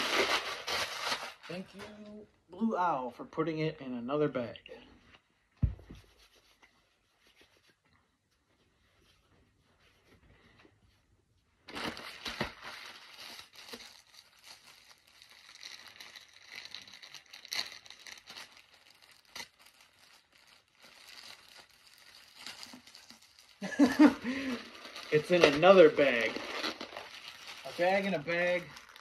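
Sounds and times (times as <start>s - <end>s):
plastic bag crinkling: 11.7s - 29.0s.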